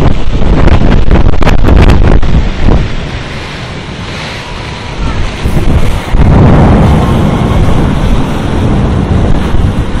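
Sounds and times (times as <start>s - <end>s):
thunder rumble: 0.0s - 3.0s, 4.9s - 10.0s
wind buffeting microphone: 0.0s - 10.0s.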